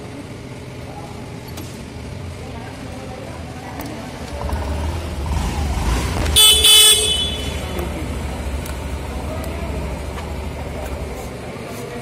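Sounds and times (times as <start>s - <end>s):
scooter horn short beeps: 6.4s - 8.2s.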